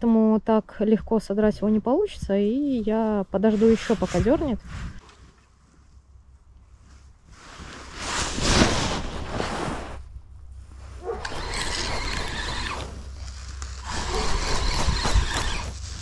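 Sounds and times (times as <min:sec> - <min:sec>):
fishing rod rustling: 0:09.9 - 0:16.0
spinning reel whirring: 0:11.2 - 0:16.0.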